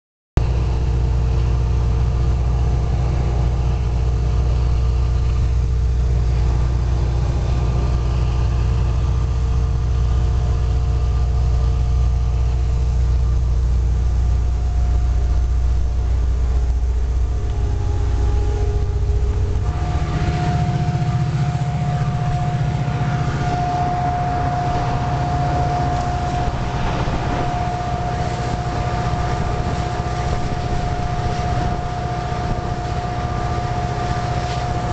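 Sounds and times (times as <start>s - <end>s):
locomotive engine drone: 0.4s - 34.9s
steady high whine: 0.4s - 34.9s.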